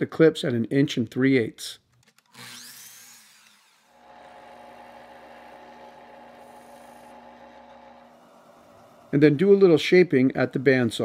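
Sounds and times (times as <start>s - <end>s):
miter saw running: 2.3s - 9.2s
bandsaw motor hum: 2.3s - 9.3s.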